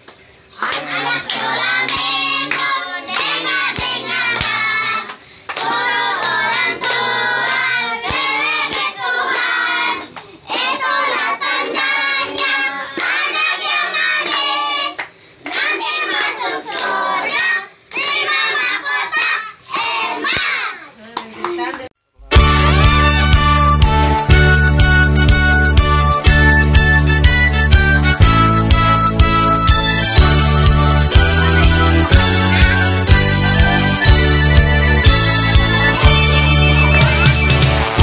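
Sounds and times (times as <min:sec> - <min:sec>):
children clapping hands: 0:00.0 - 0:20.6, 0:30.2 - 0:38.0.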